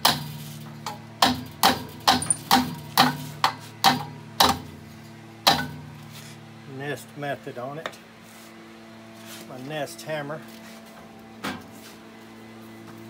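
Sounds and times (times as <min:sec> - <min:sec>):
hammer striking metal: 0:01.2 - 0:04.7.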